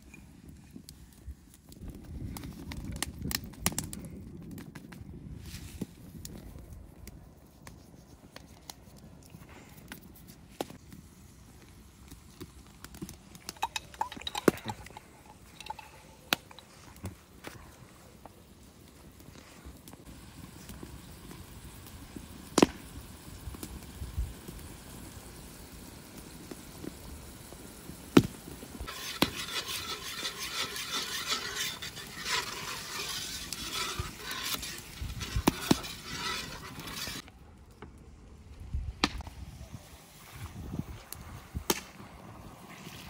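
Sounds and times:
hissing sizzle: 10.7s - 37.2s.

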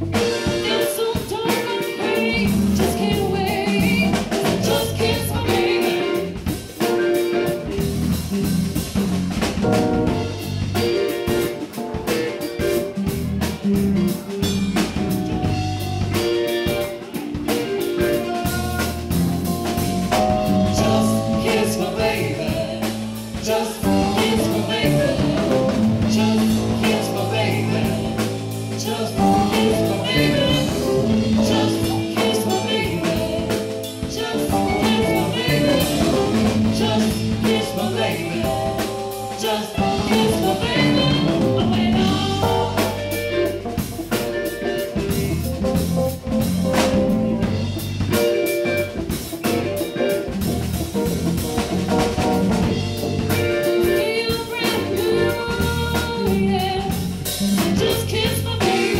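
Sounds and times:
live band playing: 0.0s - 58.9s
woman singing: 0.1s - 7.5s, 19.7s - 43.6s, 53.2s - 58.9s.

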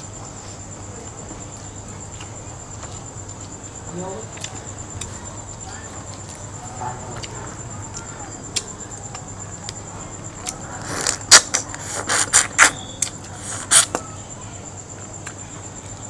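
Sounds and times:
wet chewing and crunching: 1.6s - 14.0s.

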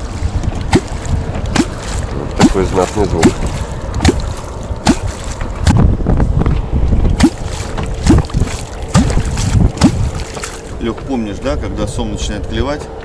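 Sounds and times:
hollow gulp of water slaps: 0.5s - 6.0s, 7.1s - 10.8s.

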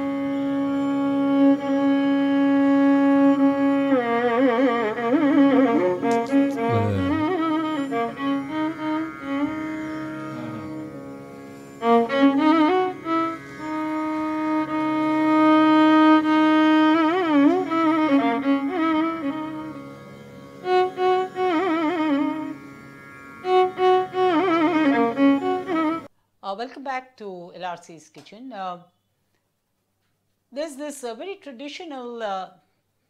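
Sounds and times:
instrumental music with sliding ornaments: 6.0s - 16.2s.

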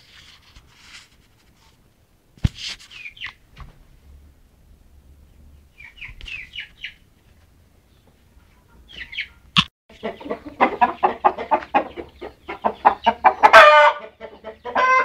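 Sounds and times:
chickens chirping: 2.9s - 3.5s, 5.2s - 15.0s.

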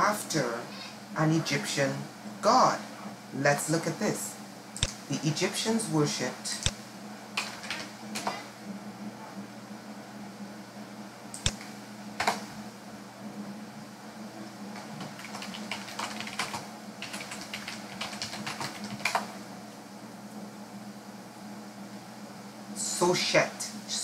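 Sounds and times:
faint steady hum: 0.0s - 24.0s
keyboard typing: 7.4s - 8.4s, 11.4s - 12.4s, 14.7s - 19.4s.

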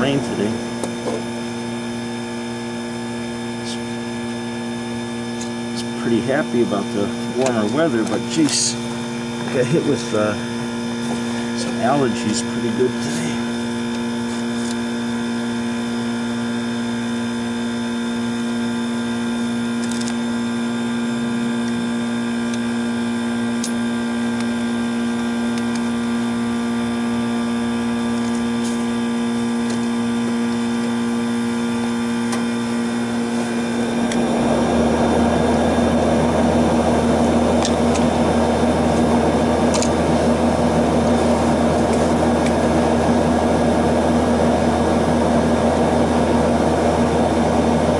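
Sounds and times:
steady machine hum: 0.0s - 47.9s
loud rushing machine noise: 28.9s - 47.9s.

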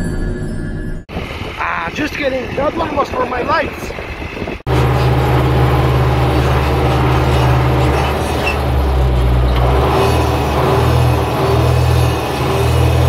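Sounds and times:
tractor engine droning: 4.7s - 13.0s.

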